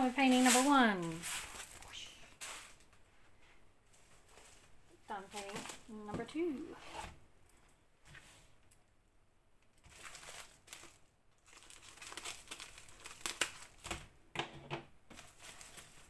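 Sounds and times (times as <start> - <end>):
bubble wrap crinkling: 0.0 - 3.0, 3.9 - 6.7, 9.6 - 14.2, 15.1 - 16.0.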